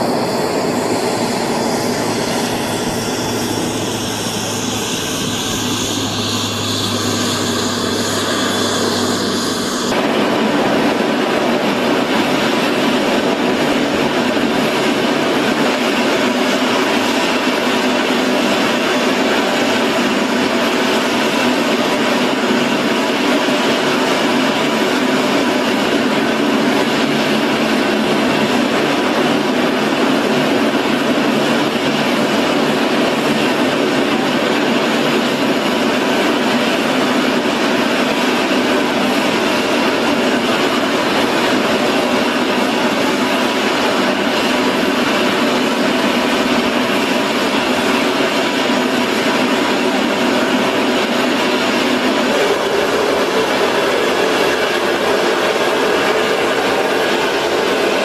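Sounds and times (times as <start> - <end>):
aircraft engines roaring: 0.0 - 58.0.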